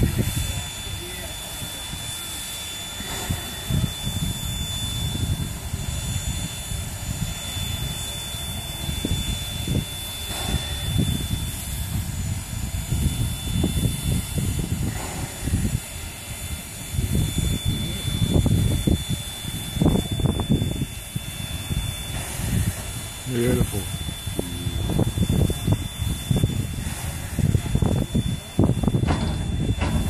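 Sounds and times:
wind buffeting microphone: 0:00.0 - 0:02.2, 0:03.0 - 0:30.0.

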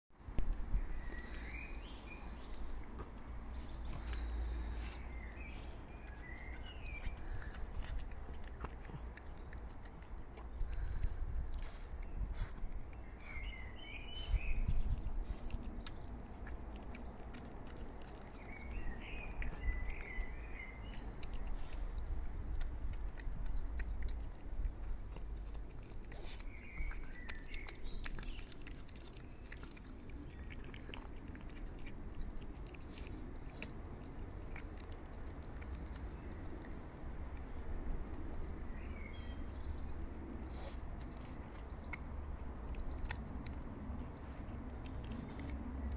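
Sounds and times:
cat chewing food: 0:00.3 - 0:45.9
birds chirping: 0:00.6 - 0:45.9.

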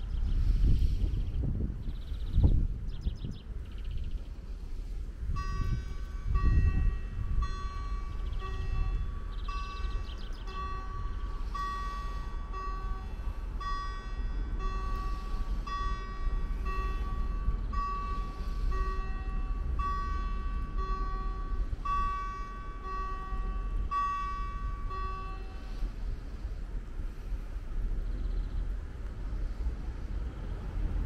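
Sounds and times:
steady low rumble: 0:00.0 - 0:31.0
level crossing warning bell: 0:05.3 - 0:26.5.

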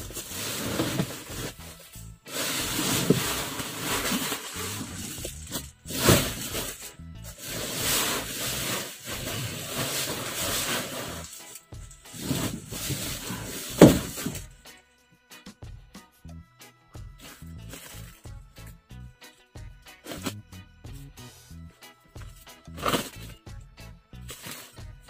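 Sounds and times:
plastic sacks dragged and scraping: 0:00.0 - 0:14.4.

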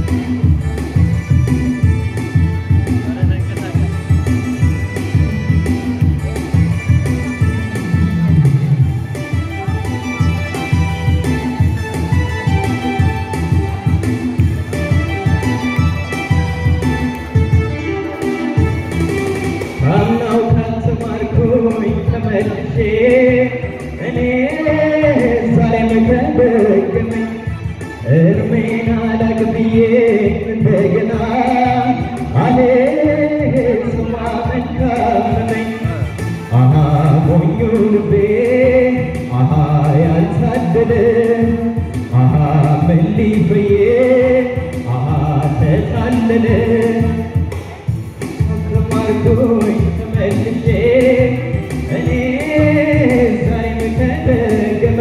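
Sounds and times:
band accompaniment: 0:00.0 - 0:55.0
man singing into a microphone: 0:19.8 - 0:47.6, 0:48.4 - 0:55.0.

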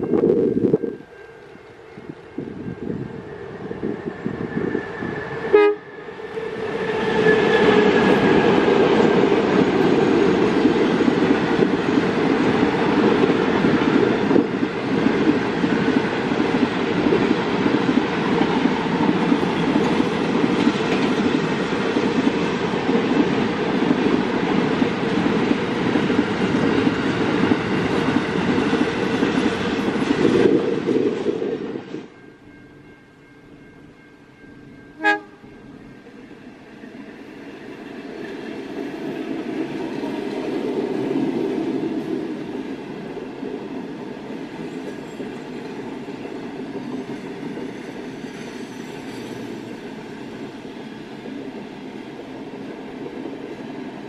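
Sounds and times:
freight train rumbling past: 0:00.0 - 0:54.0
train horn blast: 0:04.8 - 0:06.2, 0:35.0 - 0:35.6.

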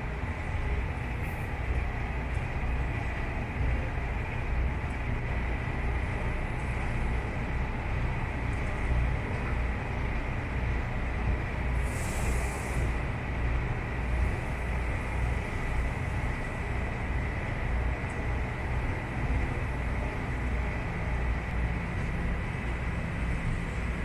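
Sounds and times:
low engine rumble: 0:00.0 - 0:24.0.

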